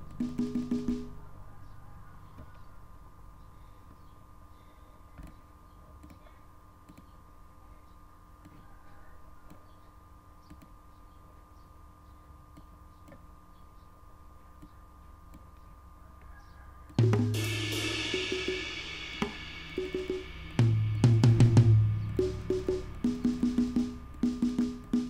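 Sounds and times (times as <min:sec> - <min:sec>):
low electrical hum: 0:00.0 - 0:25.0
computer mouse clicks: 0:10.4 - 0:10.8.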